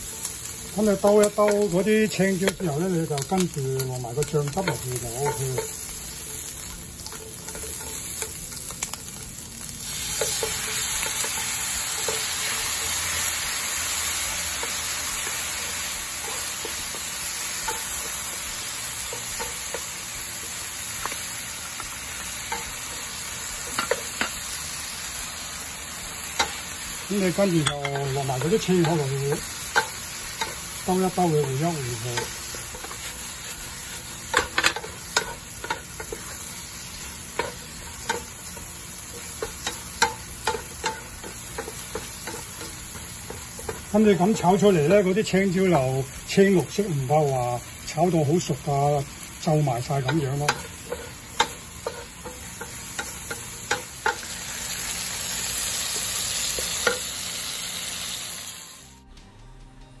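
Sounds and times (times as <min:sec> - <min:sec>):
food sizzling in a frying pan: 0:00.0 - 0:59.1
spatula knocking and scraping pan: 0:03.2 - 0:09.2, 0:27.6 - 0:44.4, 0:50.0 - 0:54.3.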